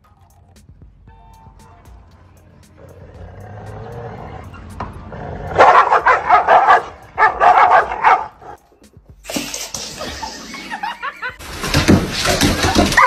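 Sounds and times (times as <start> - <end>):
dogs barking fiercely: 5.1 - 8.6, 12.0 - 13.0.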